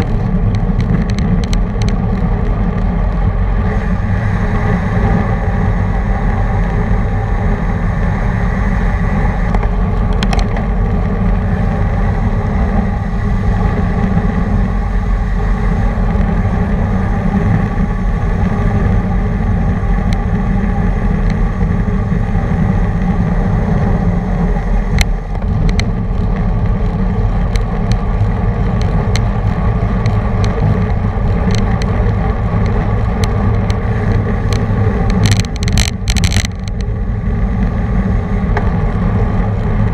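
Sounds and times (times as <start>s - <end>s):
road and tyre noise: 0.0s - 39.9s
wind rushing over microphone: 0.0s - 39.9s
sharp clicks: 31.4s - 36.9s.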